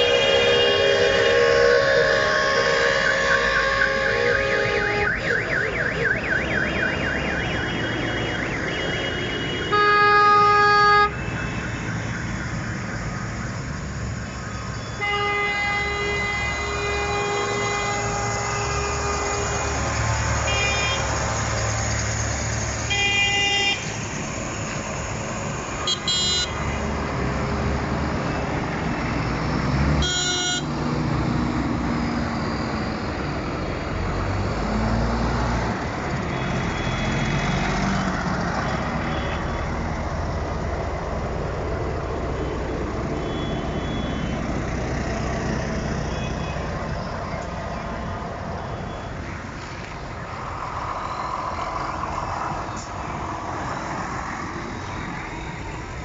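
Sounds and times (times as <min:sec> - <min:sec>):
horn blasts: 0:00.0 - 0:05.5, 0:07.5 - 0:11.8, 0:14.9 - 0:21.2, 0:25.8 - 0:26.7, 0:30.0 - 0:30.7
tractor diesel engines: 0:00.0 - 0:56.0
warbling siren-like tone: 0:01.0 - 0:09.1.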